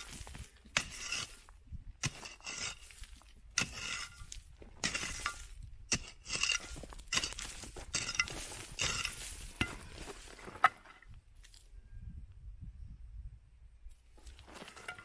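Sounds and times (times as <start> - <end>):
digging tool striking stony ground: 0.0 - 11.2, 14.2 - 15.0.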